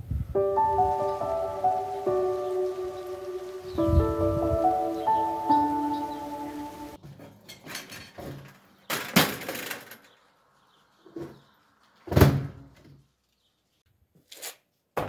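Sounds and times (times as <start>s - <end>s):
bicycle falling with a clatter: 7.0s - 10.2s.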